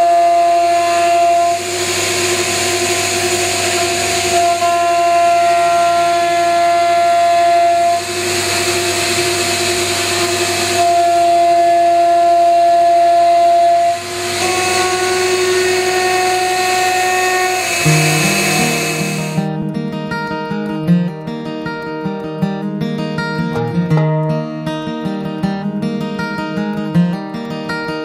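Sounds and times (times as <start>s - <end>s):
router spindle whining: 0.0s - 19.5s
hiss: 0.7s - 4.7s, 7.7s - 11.2s, 13.8s - 19.4s
acoustic guitar music: 3.2s - 28.0s.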